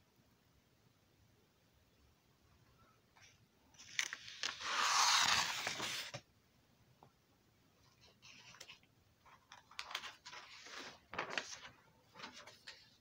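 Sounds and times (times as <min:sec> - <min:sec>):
paper rustling: 0:03.8 - 0:06.2, 0:08.0 - 0:13.0.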